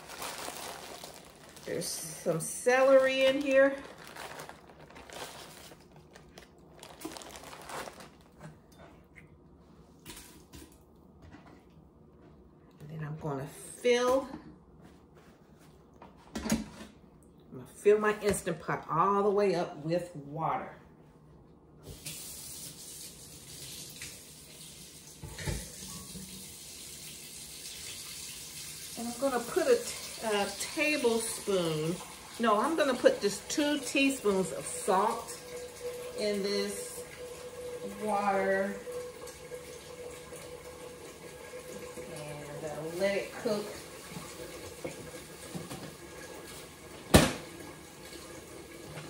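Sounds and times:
kitchen tap running: 21.8s - 49.0s.

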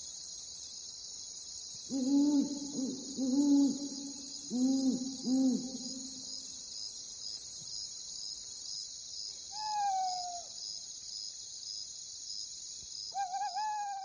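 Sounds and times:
insects chirring: 0.0s - 14.0s
owl calls: 1.9s - 6.0s, 9.6s - 10.5s, 13.2s - 14.0s.

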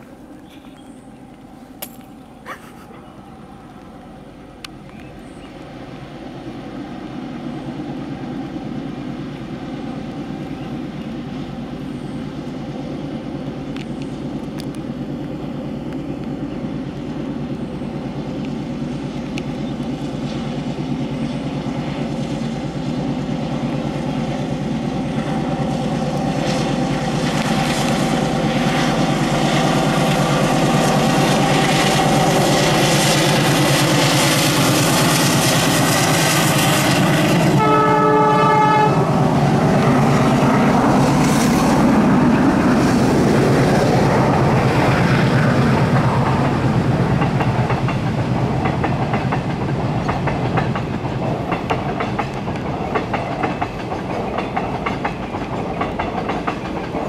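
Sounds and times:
diesel locomotive engine: 0.0s - 57.0s.

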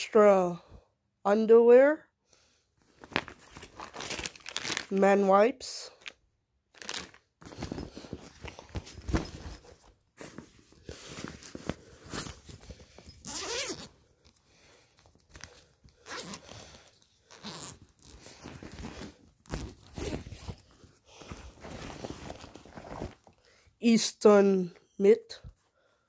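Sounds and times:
backpack rustling and knocking: 7.4s - 13.9s, 17.4s - 23.3s
zipper being pulled: 11.1s - 14.0s, 16.0s - 20.7s.

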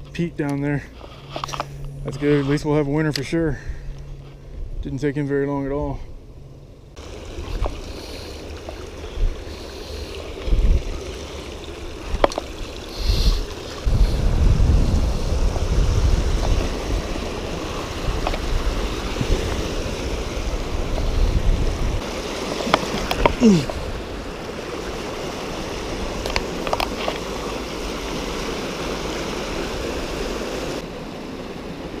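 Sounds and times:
water rushing over weir: 7.0s - 32.0s
wind buffeting microphone: 8.5s - 9.6s, 10.2s - 26.2s.

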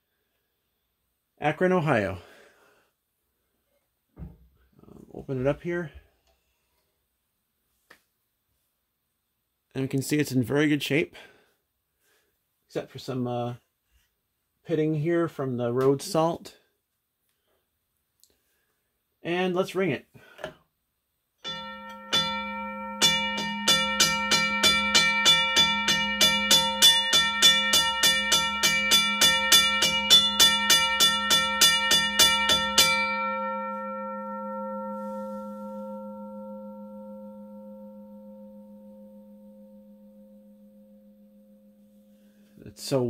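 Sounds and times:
railroad crossing bell ringing: 21.4s - 43.0s.

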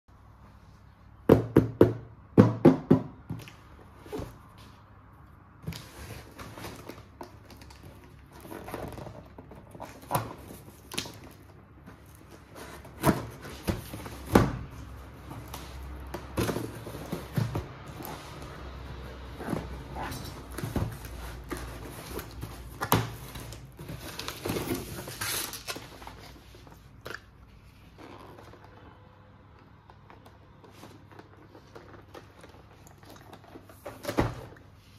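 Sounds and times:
packaging rustling: 5.7s - 28.6s.

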